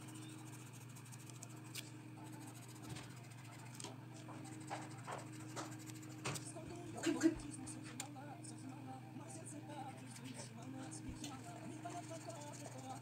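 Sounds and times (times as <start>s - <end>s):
pencil scratching on paper: 0.0s - 6.4s, 11.5s - 13.0s
steady low hum: 0.0s - 13.0s.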